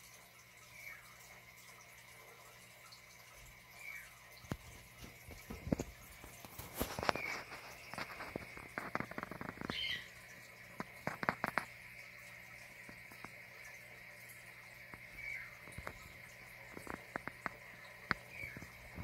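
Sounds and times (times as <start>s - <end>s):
aquarium air pump hum: 0.0s - 19.0s.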